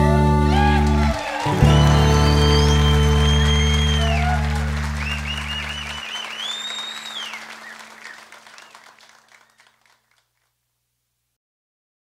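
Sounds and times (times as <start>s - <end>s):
audience applauding: 0.4s - 10.3s
high whistle: 1.2s - 8.8s.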